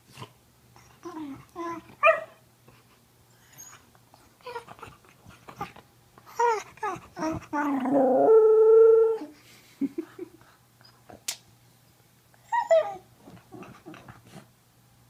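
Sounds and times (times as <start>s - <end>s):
dog whining: 6.3s - 9.3s, 12.4s - 14.0s.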